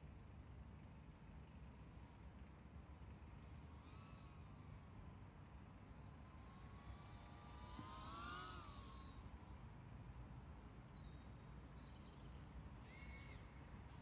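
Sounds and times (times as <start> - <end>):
low steady hiss: 0.0 - 14.0
quadcopter motors whining: 3.0 - 11.4, 12.3 - 14.0.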